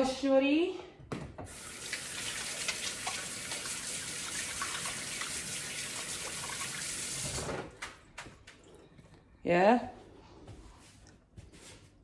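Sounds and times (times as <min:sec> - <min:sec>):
tap running into a sink: 0:01.4 - 0:08.3
hands rinsing and splashing: 0:01.5 - 0:08.7.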